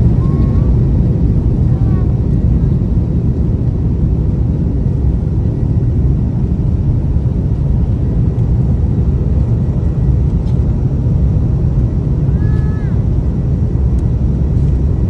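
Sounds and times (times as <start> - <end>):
jet engines rumbling in cabin: 0.0 - 15.0.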